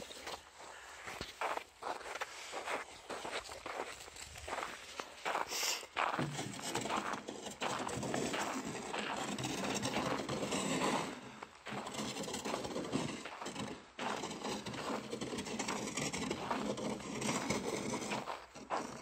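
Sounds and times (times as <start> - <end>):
plastic canister scraping on ground: 6.0 - 19.0.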